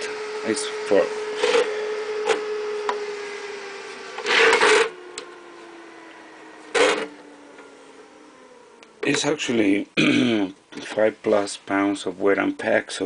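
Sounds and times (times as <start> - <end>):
small cooling fan whirring: 0.0 - 12.8
metal case scraping on table: 4.2 - 4.9.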